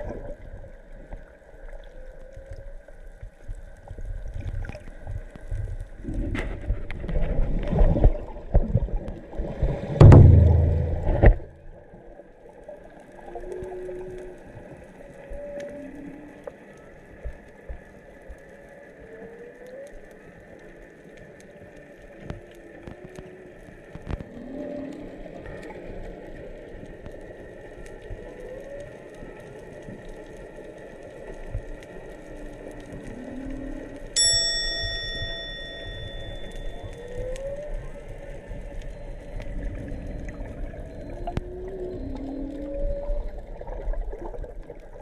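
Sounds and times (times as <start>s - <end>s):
faint crackle of clicks: 0.0s - 9.9s, 11.0s - 45.0s
whale moans and swooping calls: 15.2s - 16.6s, 24.2s - 25.5s, 32.9s - 34.2s, 39.5s - 43.9s
loud high steady tone: 34.2s - 37.1s.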